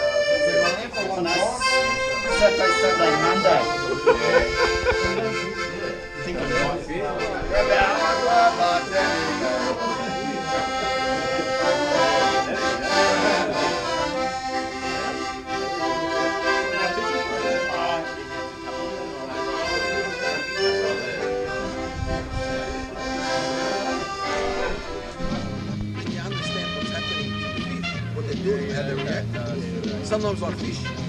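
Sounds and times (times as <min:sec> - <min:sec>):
accordion playing a tune: 0:00.0 - 0:31.0.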